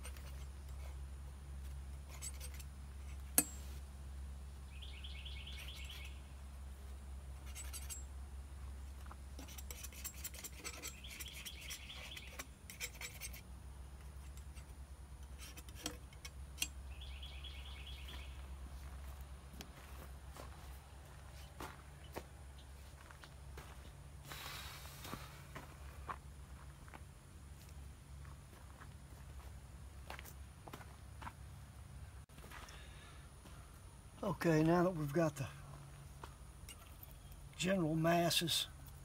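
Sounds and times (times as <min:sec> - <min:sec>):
low steady hum: 0:00.0 - 0:39.0
bird singing rapid trill: 0:04.6 - 0:06.4, 0:10.2 - 0:13.0, 0:16.6 - 0:18.5.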